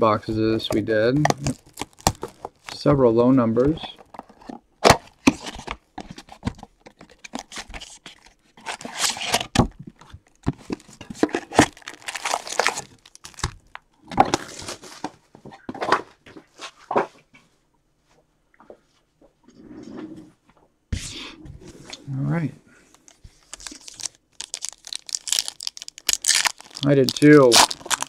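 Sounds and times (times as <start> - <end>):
packs crinkling: 0.8 - 2.9, 10.3 - 15.0, 22.9 - 28.0.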